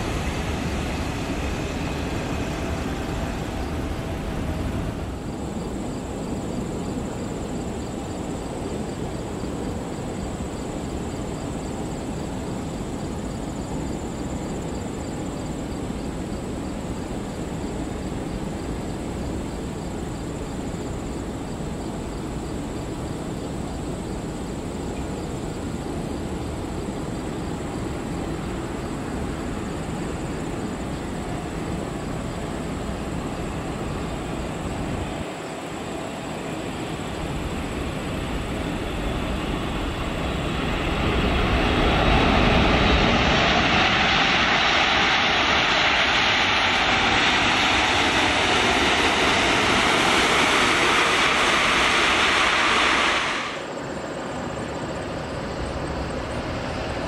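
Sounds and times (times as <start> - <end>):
jet reverse thrust roar: 0.0 - 7.5, 28.0 - 57.0
jet engine noise: 0.0 - 57.0.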